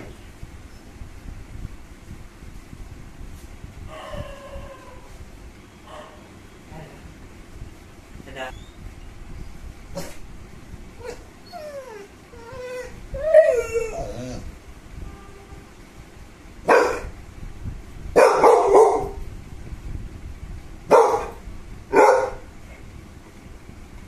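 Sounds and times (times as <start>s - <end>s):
dog whining: 3.9s - 5.2s, 11.0s - 14.6s
dog barking: 16.7s - 17.2s, 18.2s - 19.2s, 20.9s - 22.5s.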